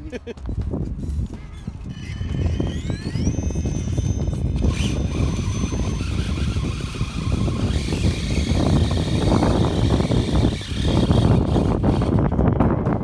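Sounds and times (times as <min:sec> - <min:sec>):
toy truck crackling and clatter: 0:01.9 - 0:12.2
electric motor whine: 0:01.9 - 0:12.4.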